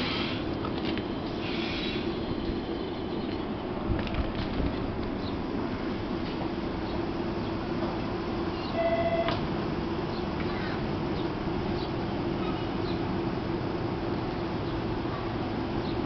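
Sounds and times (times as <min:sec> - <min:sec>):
small birds chirping: 0:01.4 - 0:03.6, 0:10.1 - 0:13.1, 0:14.6 - 0:16.0
brief high tone ending in click: 0:08.7 - 0:09.4.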